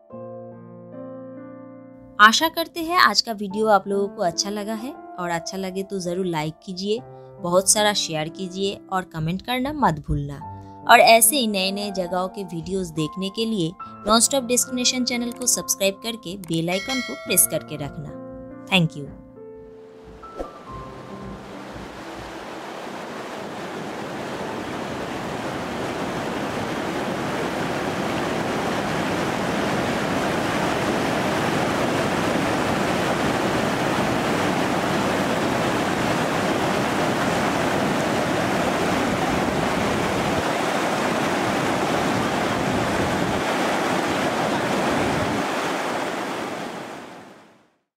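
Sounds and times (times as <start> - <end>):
river rushing over boulders: 21.2 - 47.4.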